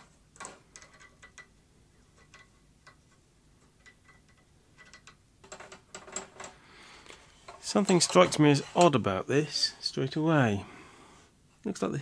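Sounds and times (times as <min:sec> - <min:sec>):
small metal parts clicking: 0:00.4 - 0:01.5, 0:02.2 - 0:03.0, 0:03.8 - 0:08.2.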